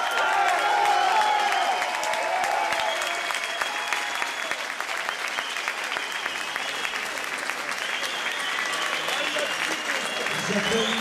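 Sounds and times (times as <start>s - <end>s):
crowd shouts: 0.0s - 4.4s
audience applauding: 0.0s - 11.0s.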